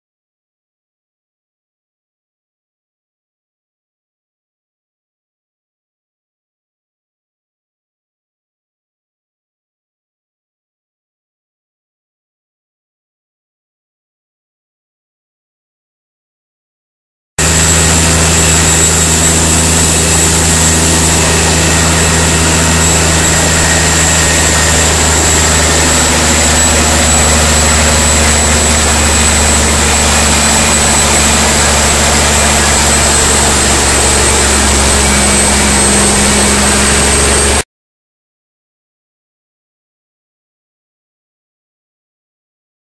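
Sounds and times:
diesel truck engine droning: 0:17.4 - 0:37.6.

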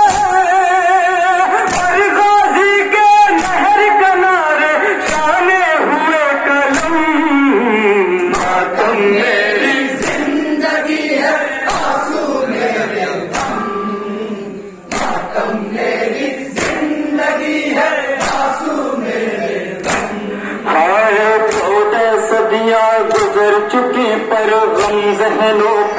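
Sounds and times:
hands slapping chests: 0:01.6 - 0:02.0, 0:03.4 - 0:03.7, 0:06.7 - 0:07.0, 0:08.2 - 0:08.8, 0:09.9 - 0:10.5, 0:11.2 - 0:12.2, 0:13.3 - 0:13.8, 0:14.9 - 0:20.3, 0:21.4 - 0:21.8, 0:23.0 - 0:23.4, 0:24.8 - 0:25.1
men chanting in chorus: 0:06.7 - 0:25.9.

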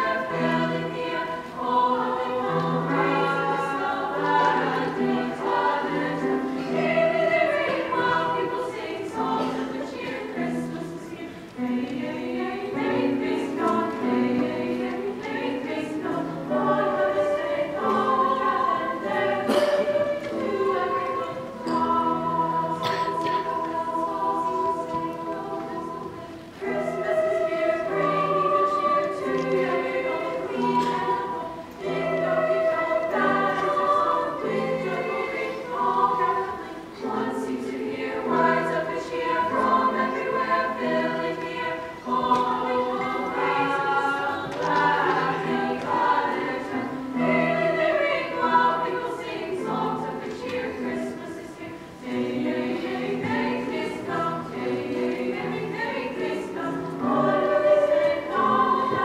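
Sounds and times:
girls' choir singing in harmony: 0:00.0 - 0:59.0
grand piano accompaniment: 0:00.0 - 0:59.0.

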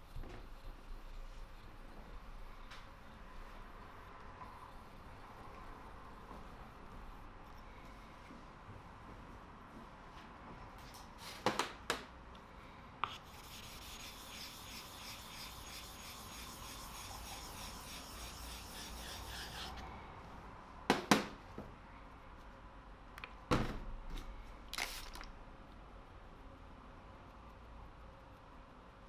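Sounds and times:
hand scraping wet sharpening stone: 0:13.4 - 0:19.8.

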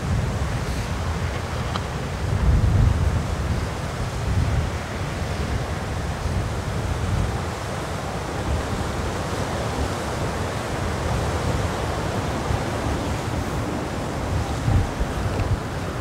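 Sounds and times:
wind buffeting microphone: 0:00.0 - 0:16.0
wind rushing: 0:10.9 - 0:16.0.

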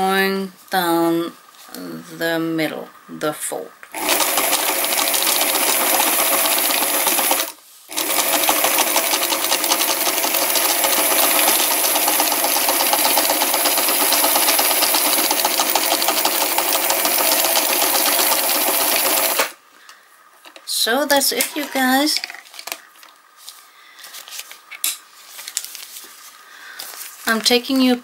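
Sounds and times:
sewing machine running: 0:03.9 - 0:19.6.

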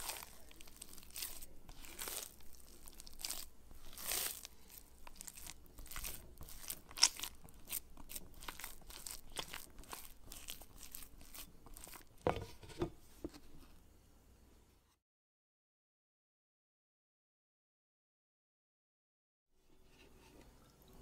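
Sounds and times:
hands kneading wet dough: 0:00.0 - 0:12.4.

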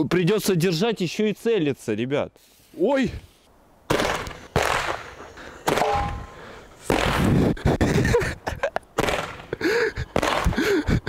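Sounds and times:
sharp firework cracks: 0:03.9 - 0:07.4, 0:09.0 - 0:09.5, 0:10.1 - 0:10.7
firework shots: 0:03.9 - 0:07.6, 0:09.0 - 0:09.5, 0:10.1 - 0:10.7.

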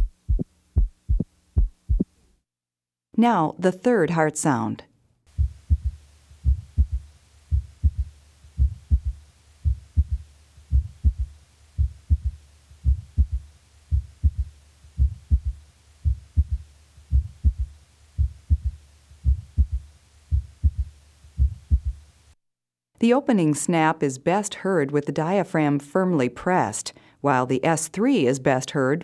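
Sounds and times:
heartbeat through stethoscope: 0:00.0 - 0:02.2, 0:05.3 - 0:22.1
steady low hum: 0:05.3 - 0:22.4.

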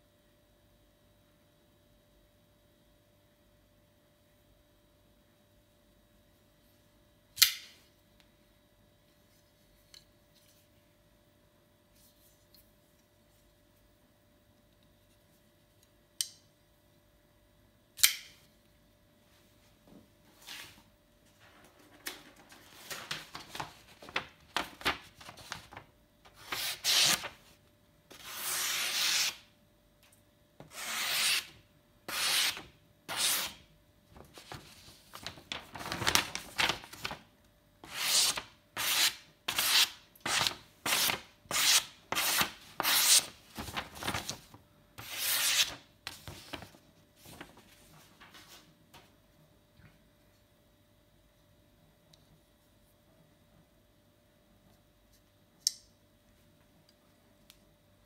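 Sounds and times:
knife slicing paper: 0:26.3 - 0:27.4, 0:28.1 - 0:29.5, 0:30.7 - 0:33.7, 0:37.8 - 0:44.3, 0:45.0 - 0:46.4.

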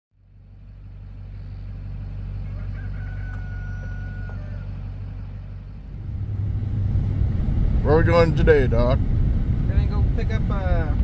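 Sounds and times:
low engine hum: 0:00.1 - 0:11.0
rooster crowing: 0:02.1 - 0:05.7.

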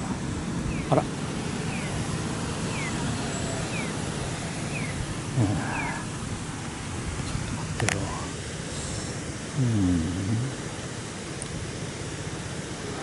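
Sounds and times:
street traffic noise: 0:00.0 - 0:13.0
crossing signal chirping: 0:00.6 - 0:06.6.

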